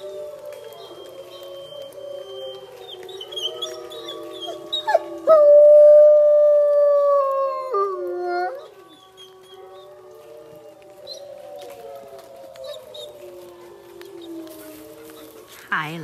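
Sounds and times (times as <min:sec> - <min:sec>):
dog howling: 0:00.0 - 0:16.0.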